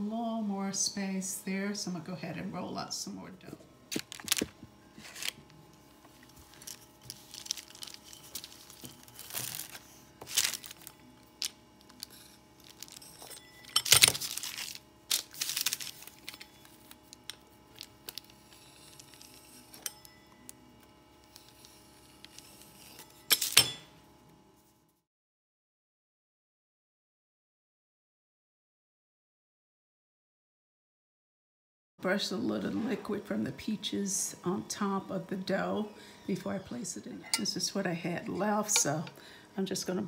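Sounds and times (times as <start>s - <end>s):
faint steady hum: 0.0s - 24.9s, 32.0s - 40.0s
plastic sheet crinkling: 3.9s - 5.5s, 6.2s - 13.2s, 13.8s - 19.4s.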